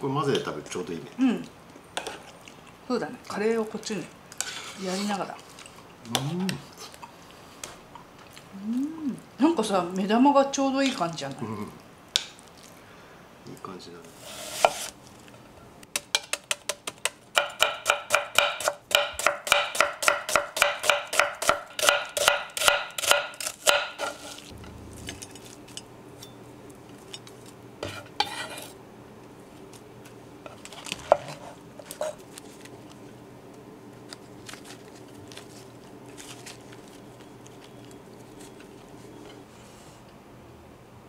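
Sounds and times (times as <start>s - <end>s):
knife slicing onion on board: 14.2s - 14.9s, 16.0s - 24.5s, 27.8s - 28.8s.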